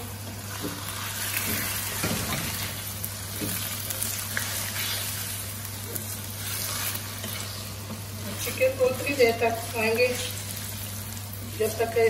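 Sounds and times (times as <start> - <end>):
food sizzling in oil: 0.0 - 12.0
wooden spatula scraping a pan: 0.5 - 2.7, 6.4 - 10.4.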